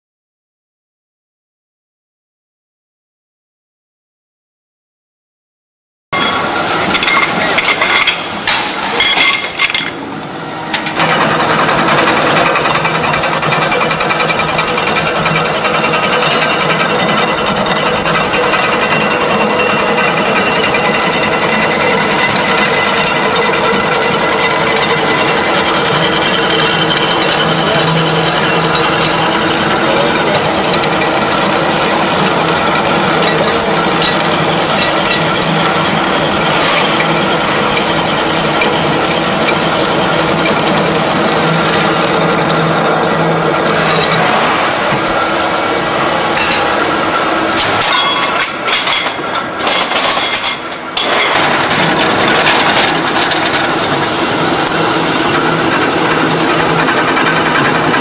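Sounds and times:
machine running with hum: 9.9s - 58.0s.

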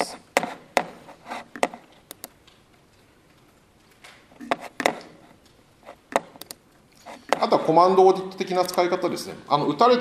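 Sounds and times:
computer mouse clicks: 1.5s - 2.6s, 3.9s - 6.6s.

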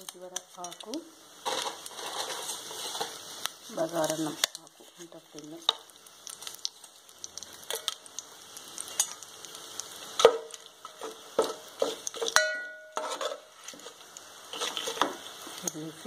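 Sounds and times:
spices sizzling in hot oil: 0.0s - 16.0s
pot ringing: 12.3s - 13.0s
steel spoon knocking against pot: 12.4s - 13.0s.

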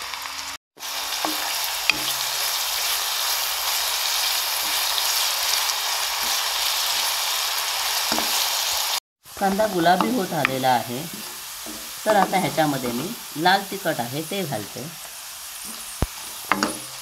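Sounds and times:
onion sizzling in hot oil: 0.0s - 17.0s
spatula tapping pan: 1.2s - 2.3s, 8.1s - 8.4s, 9.4s - 13.3s, 15.6s - 17.0s.

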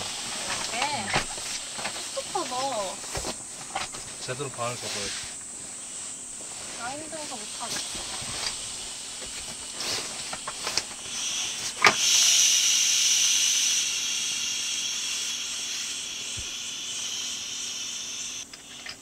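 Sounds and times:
air hissing from valve: 4.7s - 19.0s.

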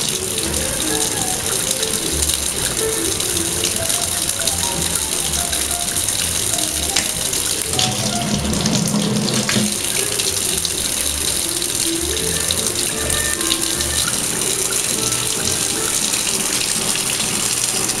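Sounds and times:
music playing: 0.0s - 18.0s
tap running into metal sink: 6.9s - 10.0s.

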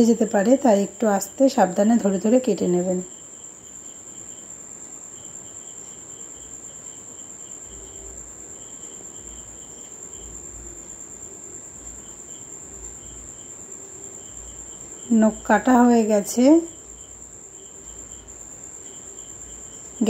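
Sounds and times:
crickets chirping: 0.0s - 20.0s.

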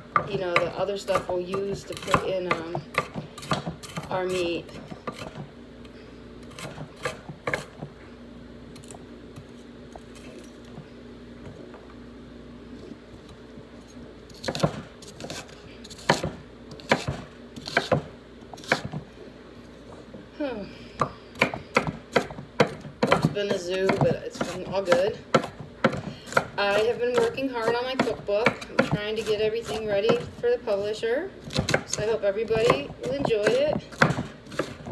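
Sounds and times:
knife chopping on wooden board: 0.1s - 5.5s, 6.5s - 7.9s, 14.4s - 19.0s, 21.0s - 30.8s, 31.4s - 34.9s.

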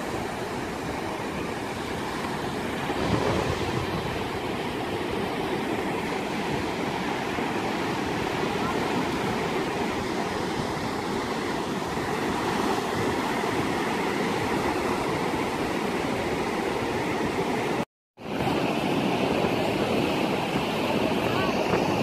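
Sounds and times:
ocean surf breaking: 0.0s - 22.0s.

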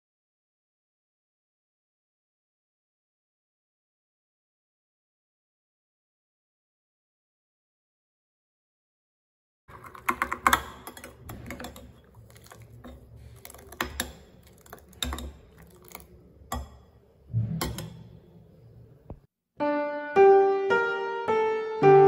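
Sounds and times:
piano music: 19.6s - 22.0s.

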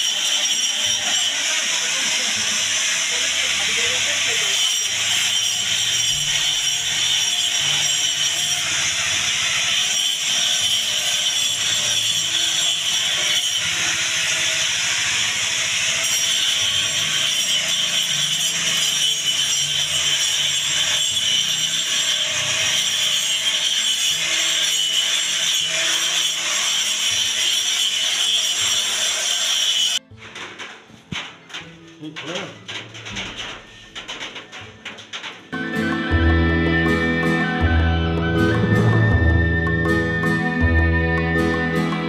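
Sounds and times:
angle grinder grinding metal: 0.0s - 42.0s.

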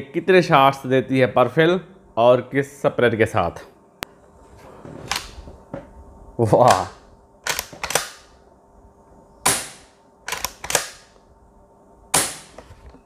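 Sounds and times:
air rifle pump action clacks: 7.4s - 8.3s, 10.3s - 11.1s.

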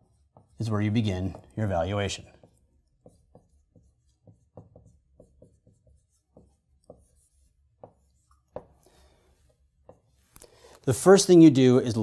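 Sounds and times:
marker writing on whiteboard: 0.0s - 10.4s.

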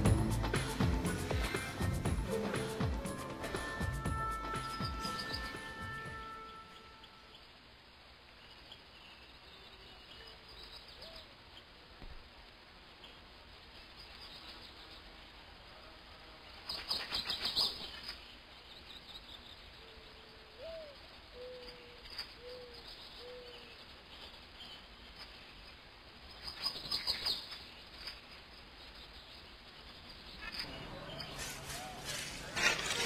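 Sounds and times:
low hooting bird notes: 0.0s - 7.5s, 19.8s - 23.9s
high bird chirping: 4.3s - 7.5s, 16.6s - 33.0s.

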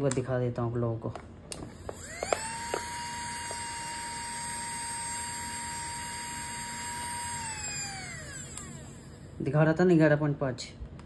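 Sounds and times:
electric motor whining: 1.7s - 9.4s.

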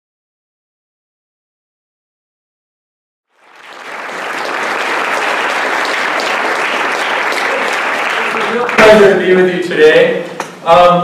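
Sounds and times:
audience applauding: 3.3s - 9.6s.

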